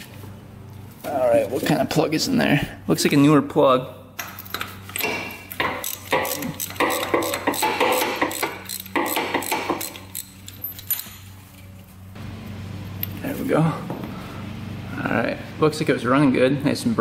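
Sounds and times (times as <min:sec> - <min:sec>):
socket wrench clicking: 0:04.2 - 0:11.0.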